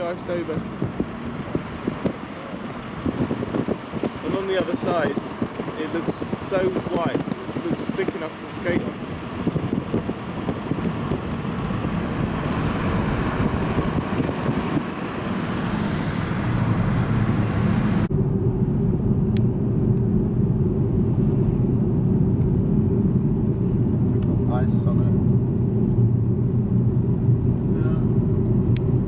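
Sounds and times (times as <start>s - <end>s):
tyre and wind noise: 0.0s - 18.1s
low engine drone: 0.0s - 29.0s.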